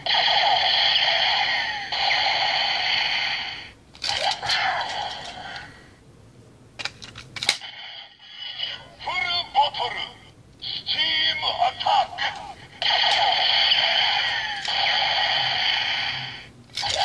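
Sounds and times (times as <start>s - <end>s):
toy gun electronic sound effects: 0.0s - 5.4s, 10.8s - 17.0s.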